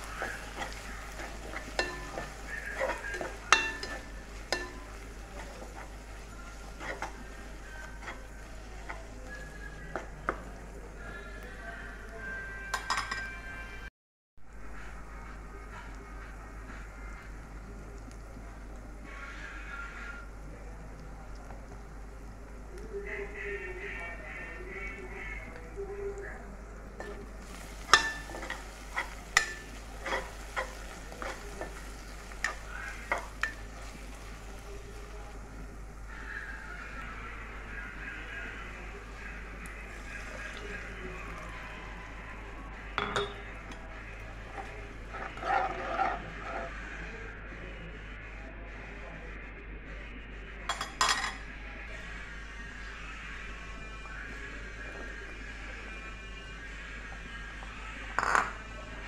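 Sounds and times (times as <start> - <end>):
spatula scraping and tapping pan: 0.0 - 9.2, 27.0 - 34.4, 44.5 - 46.7
quiet sizzle: 0.0 - 59.0.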